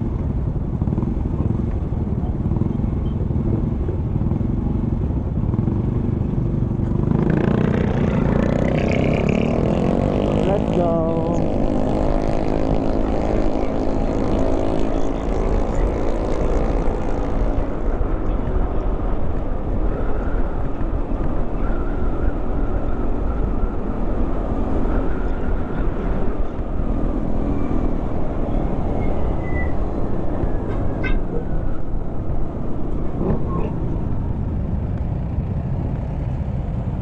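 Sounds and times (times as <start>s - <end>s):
road noise: 0.0s - 37.0s
wind rumble on microphone: 9.1s - 37.0s.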